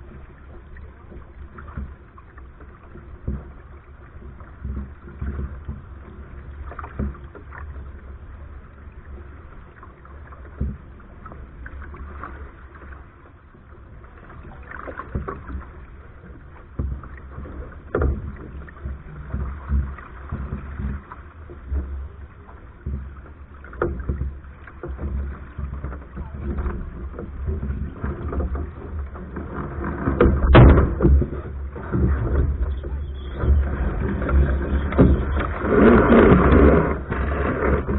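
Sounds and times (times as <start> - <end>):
knock and splash: 0.0 - 7.8, 9.8 - 13.1, 14.1 - 37.9
water rushing along a hull: 0.0 - 37.9
wind rumbling on microphone: 13.6 - 37.9.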